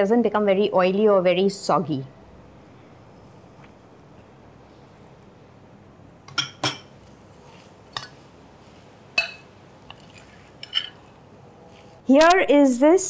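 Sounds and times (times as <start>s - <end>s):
metal spoon clinking against glass bowl: 9.2s - 11.1s.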